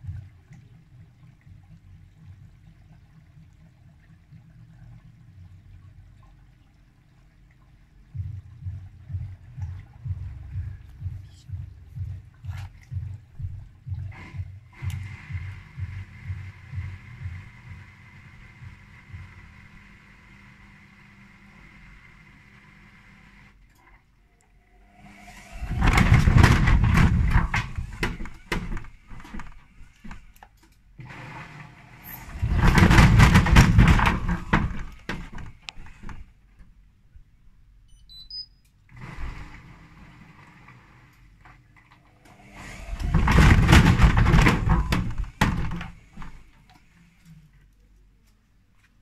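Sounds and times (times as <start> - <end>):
washing machine drum knocking and rattling: 0.0 - 2.9, 8.1 - 19.6, 25.6 - 30.3, 32.2 - 36.4, 42.7 - 46.5.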